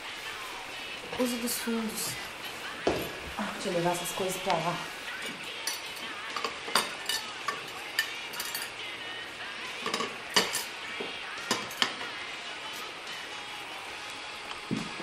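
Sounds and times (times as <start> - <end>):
tableware clinking: 5.6 - 8.8, 9.8 - 10.8, 11.4 - 12.1.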